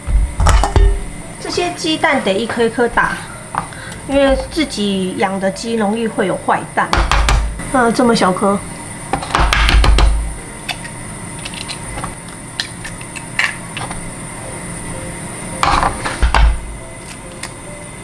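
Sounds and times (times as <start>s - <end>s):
heavy thumps: 0.0s - 1.2s, 3.6s - 4.7s
kitchenware clinking: 0.4s - 1.1s.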